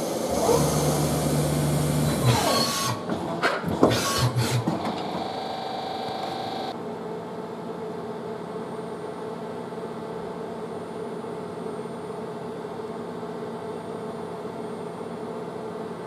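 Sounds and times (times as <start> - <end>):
lathe machine hum and hiss: 0.0 - 3.1, 3.9 - 6.7.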